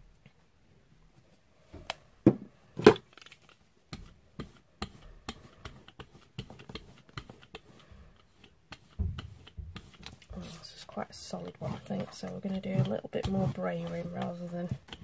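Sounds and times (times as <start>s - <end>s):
brayer rolling over wet paint: 3.4s - 15.0s.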